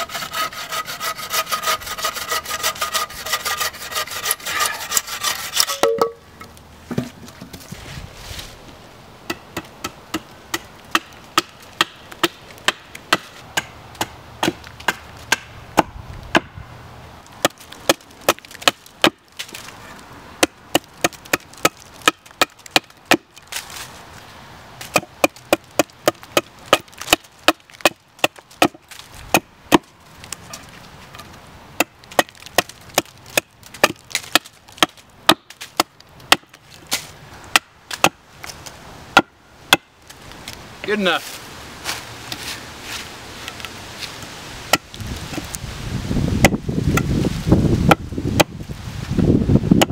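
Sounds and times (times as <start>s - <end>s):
axe chopping wood: 9.3s - 16.6s, 17.4s - 19.7s, 20.4s - 23.5s, 24.8s - 30.7s, 31.8s - 38.2s, 39.1s - 39.9s, 44.7s - 45.5s, 46.4s - 47.1s, 47.9s - 48.6s.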